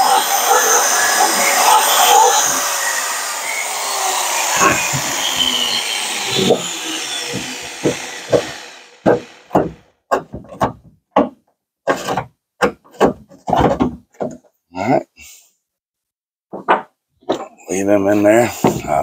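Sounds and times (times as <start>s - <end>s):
electric drill running: 0.0s - 9.5s.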